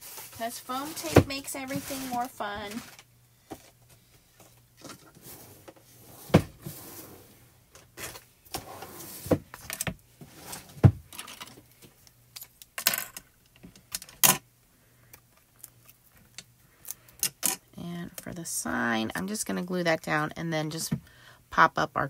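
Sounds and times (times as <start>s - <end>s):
scraping and rustling: 0.0s - 3.8s.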